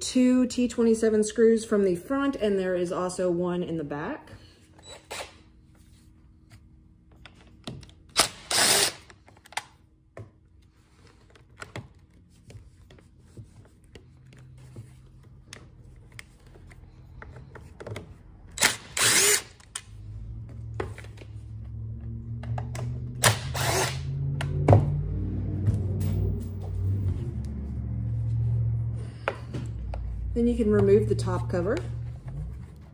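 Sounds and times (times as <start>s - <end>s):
cordless drill spinning out screws: 8.2s - 9.1s, 18.6s - 19.7s, 23.5s - 24.0s
low hum: 19.7s - 32.9s.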